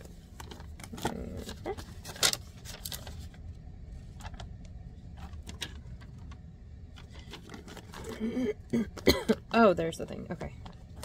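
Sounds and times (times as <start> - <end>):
paper rustling: 0.0 - 3.4, 7.0 - 8.4
low steady hum: 0.0 - 11.0.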